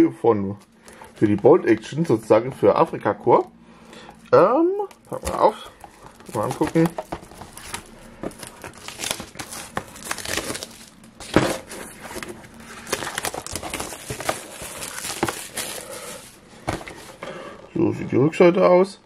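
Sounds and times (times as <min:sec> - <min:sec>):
plastic wrap crinkling: 0:04.8 - 0:17.1
plastic wrap snapping: 0:04.9 - 0:11.4, 0:12.8 - 0:15.9.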